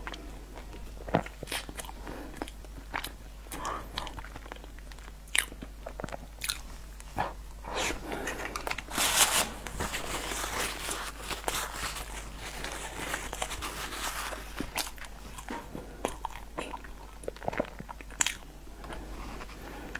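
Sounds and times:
wet chewing and lip-smacking: 0:00.0 - 0:07.1, 0:14.6 - 0:19.0
paper napkin rustling: 0:08.6 - 0:14.8.

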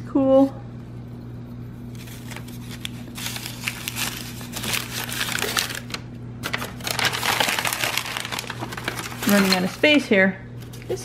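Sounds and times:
packing paper crinkling: 0:01.9 - 0:10.0.

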